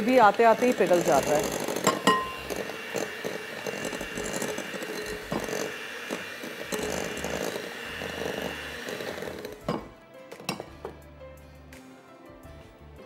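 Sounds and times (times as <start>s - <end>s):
electric hand mixer whirring: 0.0s - 10.6s.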